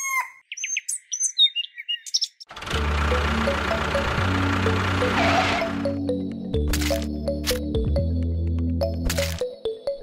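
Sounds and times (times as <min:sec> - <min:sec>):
background music: 0:02.6 - 0:10.0.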